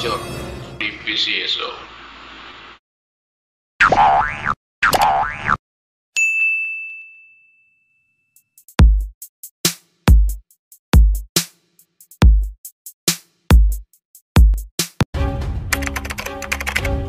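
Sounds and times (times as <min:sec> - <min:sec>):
bell ding: 0:06.2 - 0:08.6
drum machine beat: 0:08.5 - 0:15.1.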